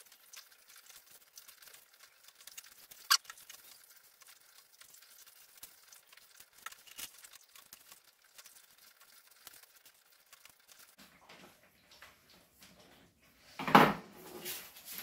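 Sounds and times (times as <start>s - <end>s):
paper rustling: 0.0s - 11.0s, 14.2s - 15.0s.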